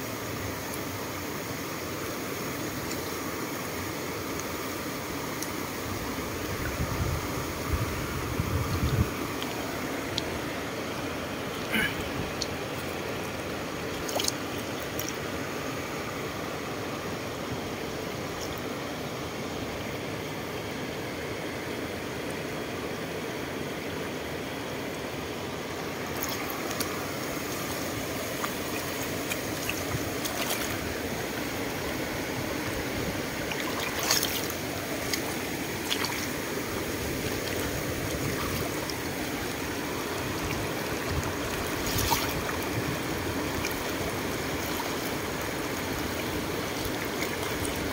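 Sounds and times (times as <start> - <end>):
brief water splashes: 41.8 - 42.6.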